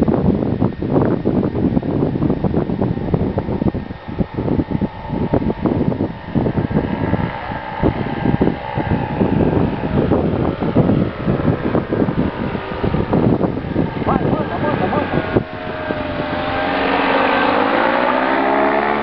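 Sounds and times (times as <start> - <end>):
paramotor engine droning: 0.0 - 19.0
wind buffeting microphone: 0.0 - 19.0.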